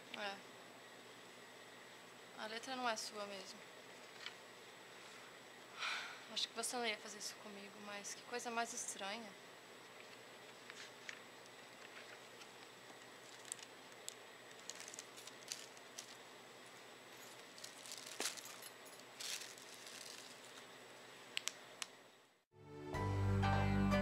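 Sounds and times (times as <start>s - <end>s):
handbag rustling: 13.2s - 13.7s, 14.5s - 16.2s, 17.1s - 20.6s.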